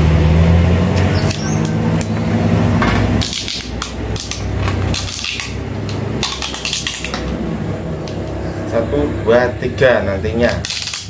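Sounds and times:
steady low hum: 0.0s - 11.0s
packing tape ripping off roll: 2.9s - 7.4s, 10.5s - 11.0s.

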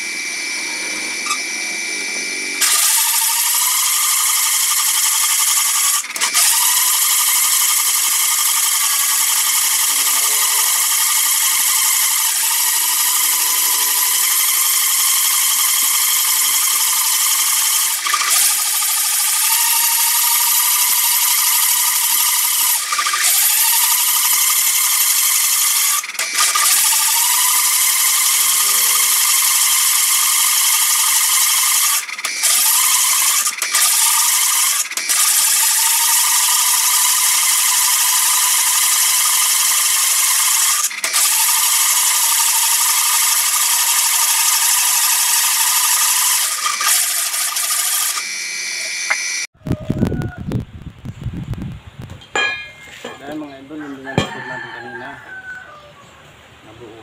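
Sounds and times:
drill bit grinding metal: 0.0s - 49.6s, 52.4s - 55.2s.

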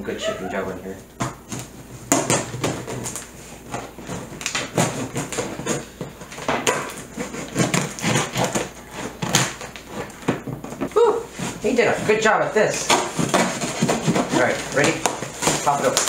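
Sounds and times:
cardboard scraping: 0.6s - 16.0s
tape ripping: 1.4s - 10.8s, 12.8s - 16.0s
knife slicing packing tape: 1.5s - 10.2s.

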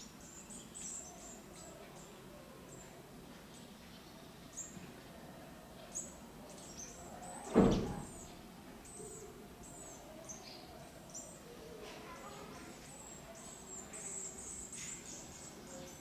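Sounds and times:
loud thump: 7.5s - 8.1s.

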